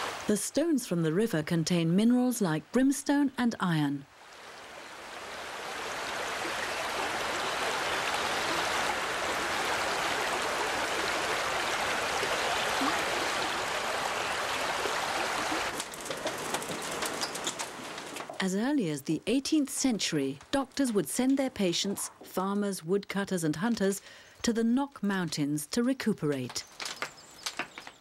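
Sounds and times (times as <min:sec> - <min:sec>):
irregular clicks and knocks: 0:15.7 - 0:18.4, 0:26.3 - 0:28.0.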